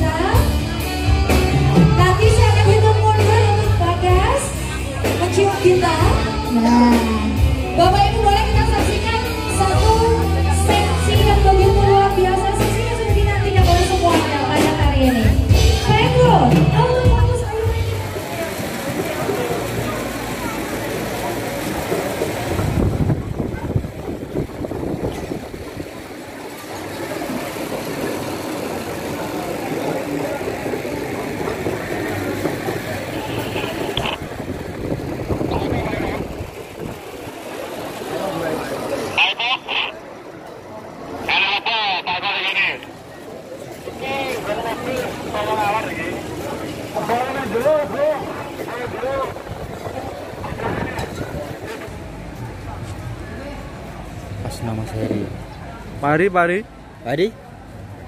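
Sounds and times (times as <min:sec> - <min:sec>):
bass line: 0:00.0 - 0:25.8, 0:31.6 - 0:37.0
crowd chatter: 0:00.0 - 0:58.0.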